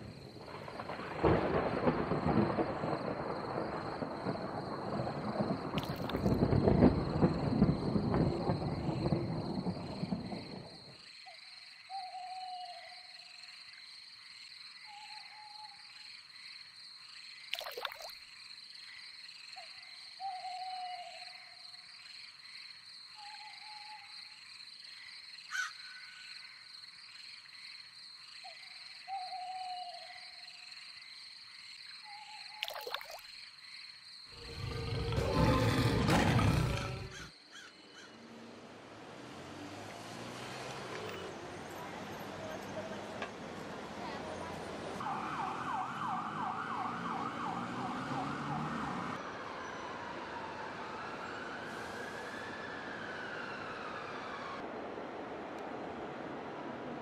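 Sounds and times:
frog croaks: 5.8s - 6.4s, 17.6s - 18.1s, 32.6s - 33.2s, 34.4s - 38.1s.

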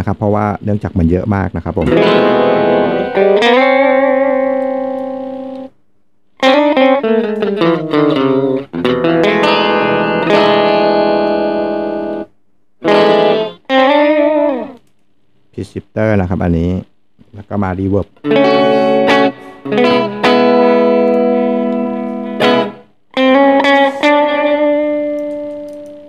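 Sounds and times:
electric guitar with pitch-shifted harmony: 1.8s - 5.7s, 6.4s - 14.8s, 18.2s - 26.0s.

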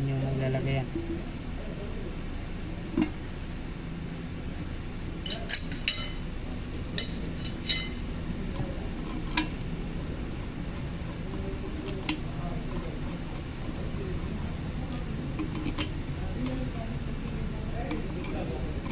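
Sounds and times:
steel bolts clinking on metal: 5.2s - 8.0s.

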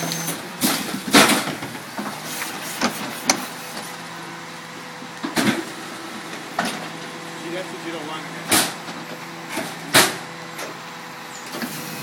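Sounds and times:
cart tipper banging trash cart: 0.0s - 3.4s, 8.4s - 10.8s
truck engine hum: 0.0s - 12.0s.

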